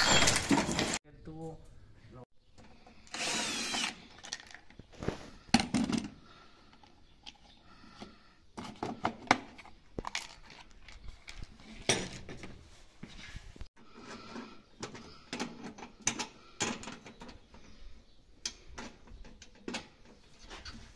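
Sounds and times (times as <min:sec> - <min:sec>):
cordless drill whirring: 0:03.1 - 0:04.1.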